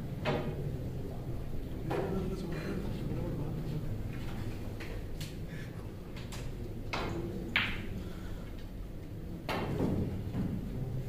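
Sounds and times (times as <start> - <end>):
low room hum: 0.0 - 11.0
snooker balls clicking: 6.1 - 8.0.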